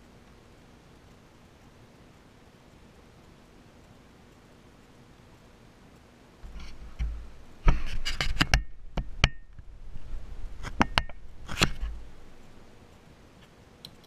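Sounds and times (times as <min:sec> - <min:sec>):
sharp clicks and knocks: 0:06.4 - 0:09.7, 0:10.6 - 0:12.6.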